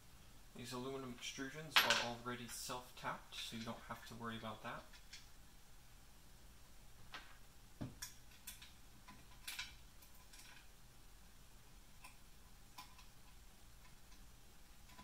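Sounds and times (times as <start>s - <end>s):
faint low hum: 0.0s - 15.0s
metal parts clicking and knocking: 8.0s - 10.7s.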